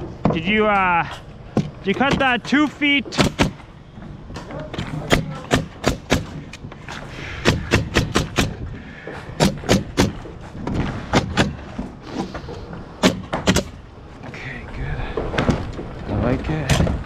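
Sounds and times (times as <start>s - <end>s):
nail gun firing: 3.2s - 3.6s, 5.1s - 6.4s, 7.4s - 8.6s, 9.4s - 10.2s, 13.0s - 13.8s.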